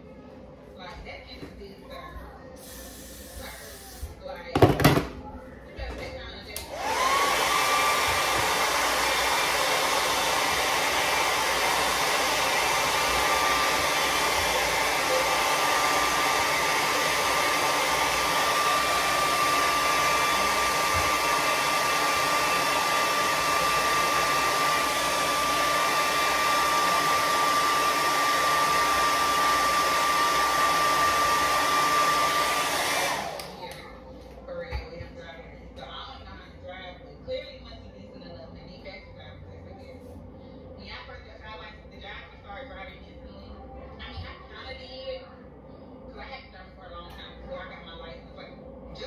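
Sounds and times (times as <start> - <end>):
hair dryer running: 2.6 - 5.0, 6.3 - 34.9.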